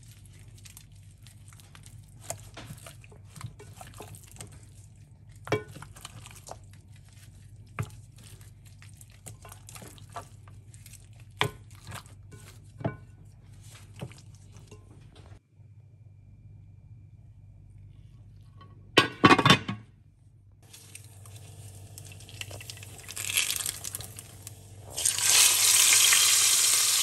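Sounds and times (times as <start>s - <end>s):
wet squishing of meat: 0.0s - 14.7s, 20.6s - 27.0s
faint low hum: 0.0s - 25.7s.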